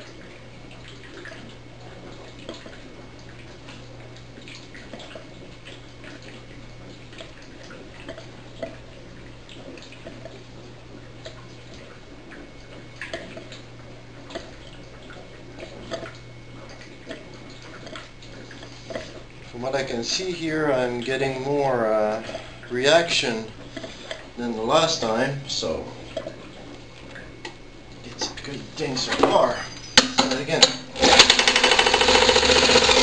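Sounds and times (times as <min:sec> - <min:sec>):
small pops and drips: 0:00.0 - 0:19.6, 0:26.0 - 0:28.6
steady low hum: 0:00.0 - 0:33.0.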